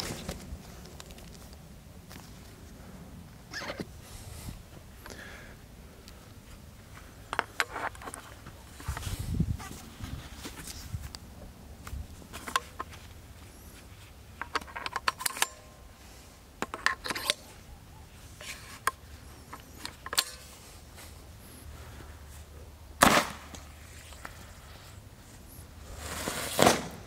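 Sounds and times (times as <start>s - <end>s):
metallic clicks of launcher loading: 14.5s - 15.7s
launcher gunshot: 23.0s - 23.6s, 26.5s - 27.0s.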